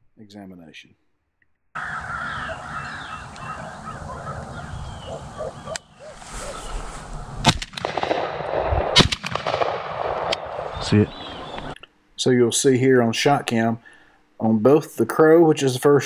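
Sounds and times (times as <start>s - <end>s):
crow cawing: 1.8s - 6.6s
shotgun shots: 7.4s - 11.0s.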